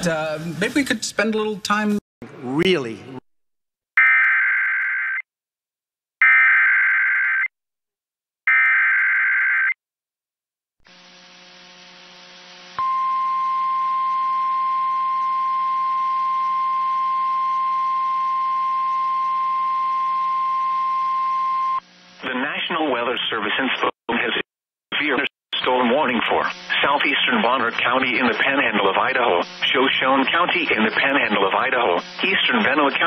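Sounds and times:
steady attention tone: 10.9 - 22.3.

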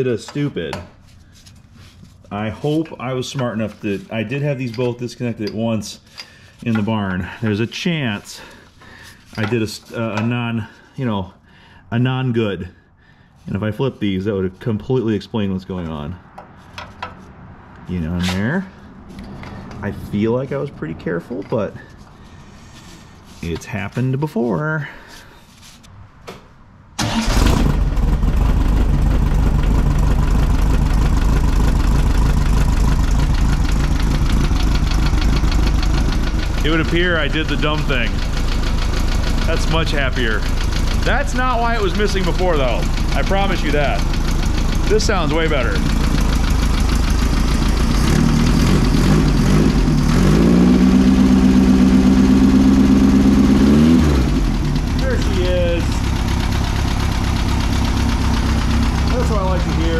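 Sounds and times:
car engine starting and idling: 27.0 - 59.9.

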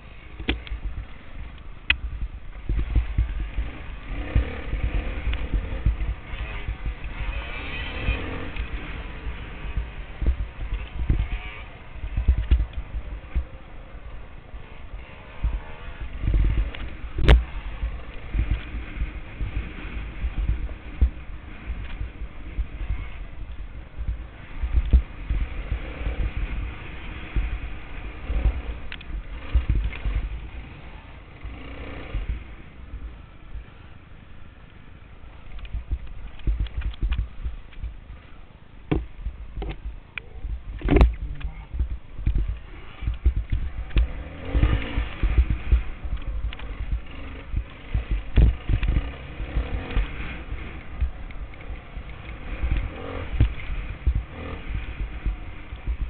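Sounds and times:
wind buffeting microphone: 0.0 - 33.7, 35.4 - 38.2, 38.8 - 56.0
dirt bike engine running: 0.0 - 56.0
knocks from bumps: 38.9 - 40.0, 40.6 - 51.5.

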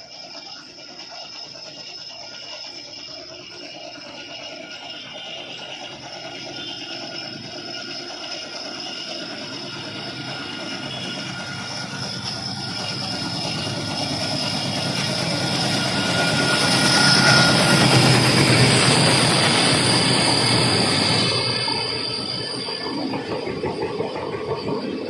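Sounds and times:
diesel locomotive engine: 0.0 - 25.0
train wheels rumbling on rails: 0.0 - 25.0.

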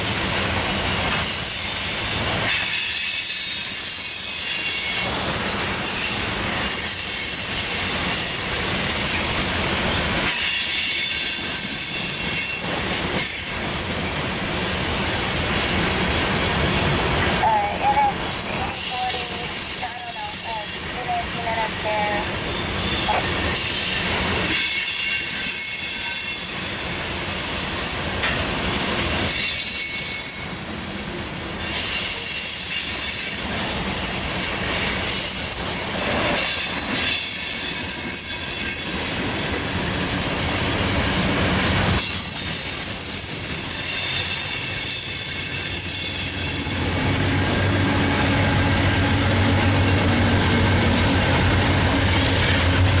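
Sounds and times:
train wheels squealing: 0.0 - 50.8
diesel locomotive drone: 0.0 - 53.0
rail noise: 0.0 - 53.0
clickety-clack of wheels: 28.2 - 28.5.

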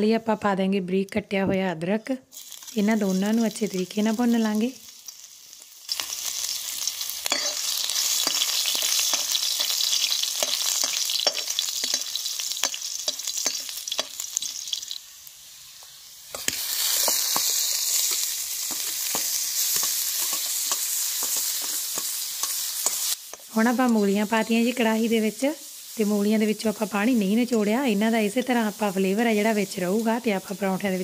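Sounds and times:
spices sizzling in hot oil: 2.3 - 31.0
spatula scraping and tapping pan: 8.2 - 9.8, 10.4 - 14.2, 16.4 - 23.5.

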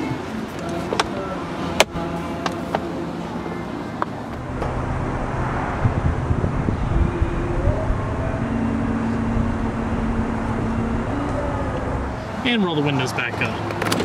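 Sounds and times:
car engine idling: 0.3 - 14.0
convertible top motor running: 4.0 - 14.0.

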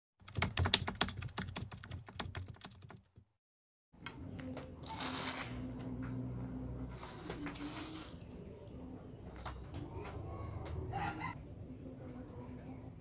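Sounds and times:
keyboard typing clicks: 0.2 - 3.2.

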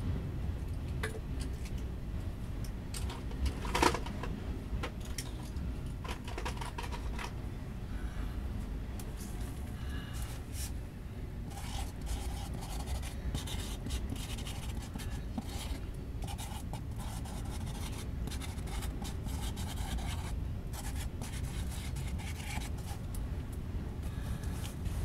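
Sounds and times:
scraping rustling noise: 9.1 - 10.8.

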